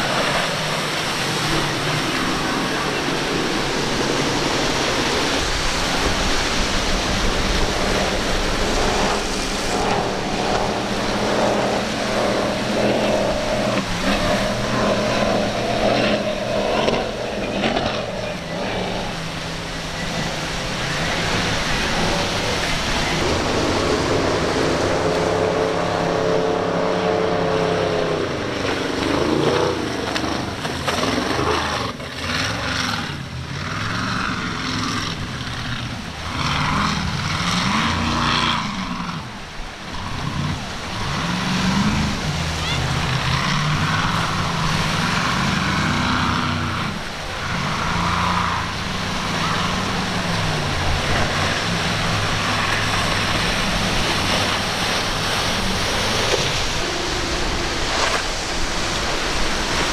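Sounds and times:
wind noise: 0.0s - 31.8s
motorboat engines running: 0.0s - 59.9s
water wash: 0.0s - 59.9s.

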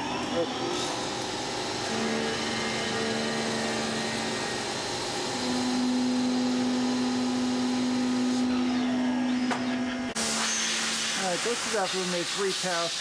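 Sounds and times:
lathe spindle humming: 0.0s - 12.4s
hiss of coolant and cutting: 10.2s - 13.0s.

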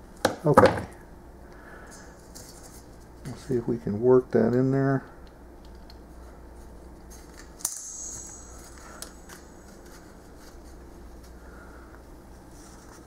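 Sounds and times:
sharp metallic click: 7.6s - 9.2s.

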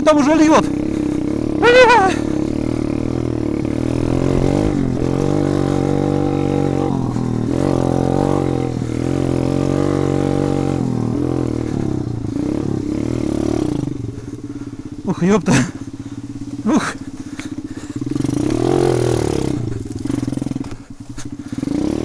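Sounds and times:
motorbike engine revving: 0.0s - 22.0s.

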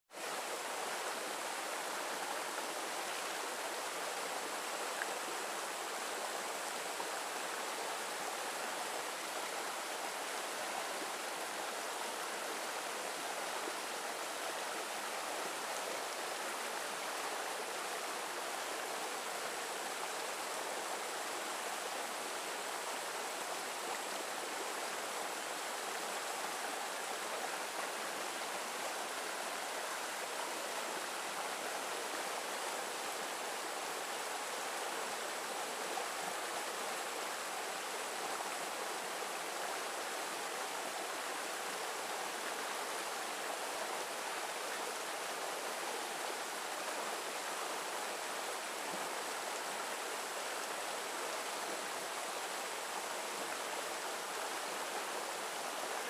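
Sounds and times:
stream rushing over rocks: 0.1s - 56.0s.

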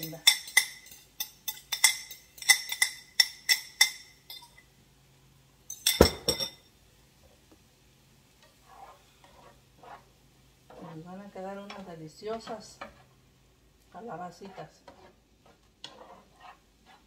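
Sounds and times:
utensil clinking against cookware: 0.0s - 4.7s, 5.7s - 6.6s.

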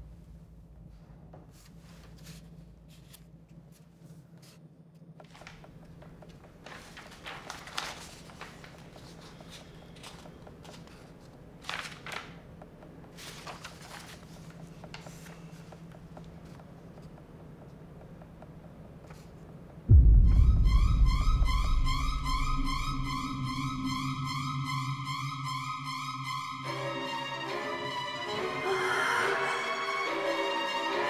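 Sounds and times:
low room hum: 0.0s - 28.3s
paper rustling: 6.3s - 12.5s, 13.1s - 17.1s.

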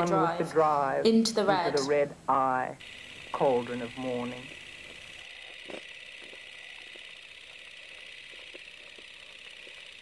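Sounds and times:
faint clicks and ticks: 4.8s - 10.0s.

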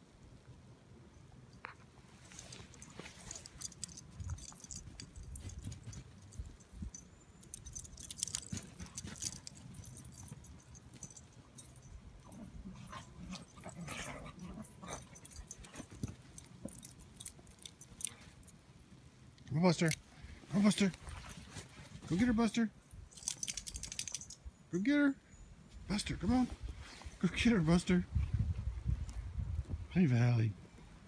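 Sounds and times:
paws crunching in snow: 2.0s - 6.8s, 7.7s - 11.7s, 12.7s - 18.4s, 20.1s - 22.5s
metallic jingle: 2.2s - 18.6s, 22.0s - 24.9s.

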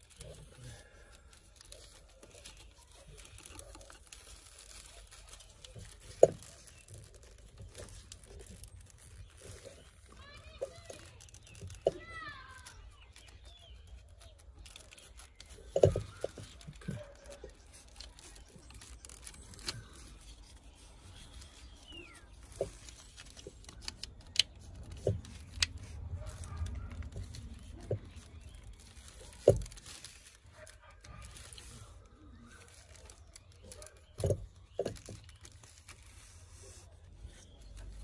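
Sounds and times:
rustling of wiring and gloves: 0.0s - 38.0s.

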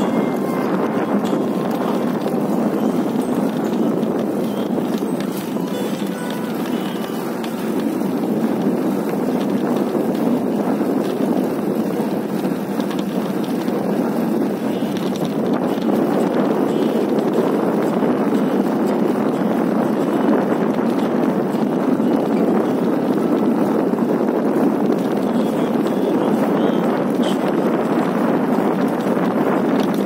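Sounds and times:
bike tyres rolling: 0.0s - 30.0s
wind across microphone: 0.0s - 30.0s.

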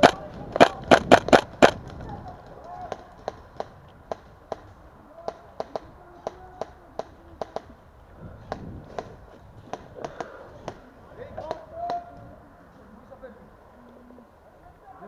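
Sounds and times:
airsoft gunfire cracks: 0.0s - 1.9s.

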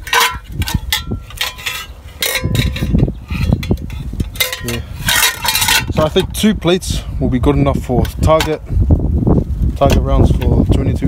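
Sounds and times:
metal plates clinking and scraping: 0.0s - 6.6s, 8.0s - 8.6s.

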